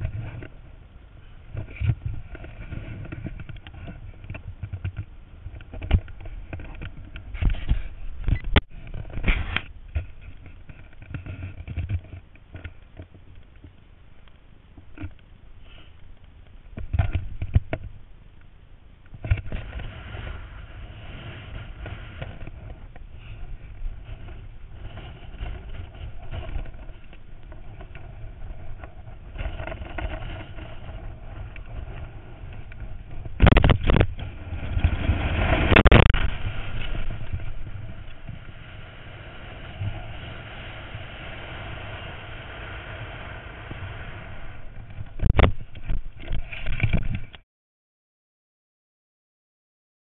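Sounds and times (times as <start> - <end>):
wind buffeting microphone: 19.1 - 47.3.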